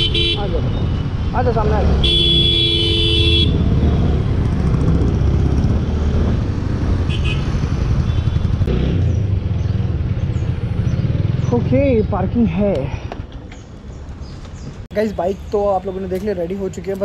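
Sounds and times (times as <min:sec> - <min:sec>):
vehicle horn: 0:00.0 - 0:00.8, 0:02.0 - 0:03.7, 0:07.1 - 0:07.5.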